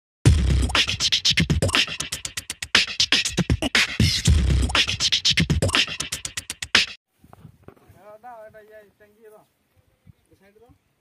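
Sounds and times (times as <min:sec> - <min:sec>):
percussive intro music with bass: 0:00.2 - 0:07.0.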